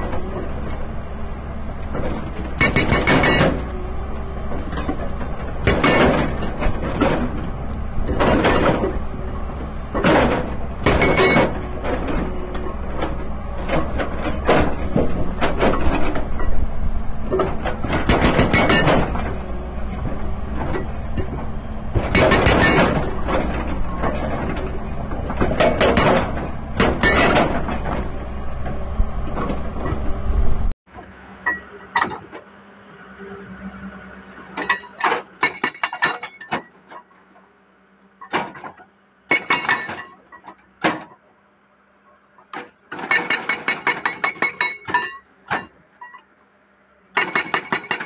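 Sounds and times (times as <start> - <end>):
excavator engine drone: 0.0 - 48.0
hydraulic breaker hammering rock: 1.8 - 16.6, 17.3 - 28.8, 34.6 - 36.8, 38.2 - 41.2, 42.5 - 45.8, 47.1 - 48.0.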